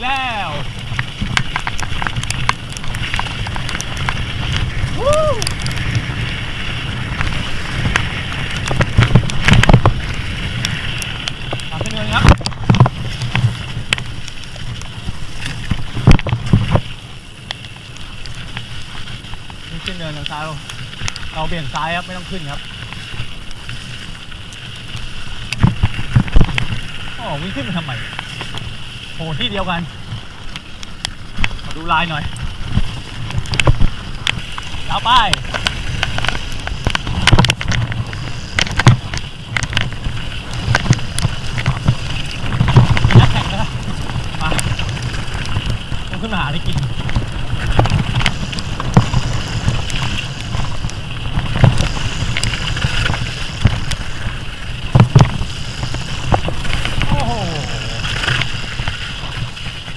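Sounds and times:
bike rumble on dirt trail: 0.0 - 59.9
wind buffeting microphone: 0.0 - 59.9
bike rattles and knocks: 31.3 - 59.9.

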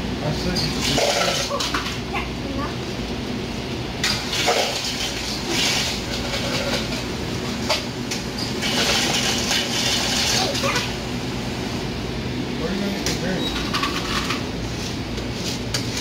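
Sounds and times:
soda fountain pouring drink: 4.1 - 6.8, 8.6 - 10.6.

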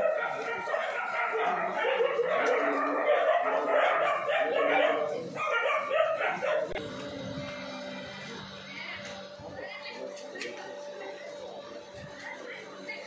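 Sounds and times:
dogs barking and yelping: 0.0 - 6.8.

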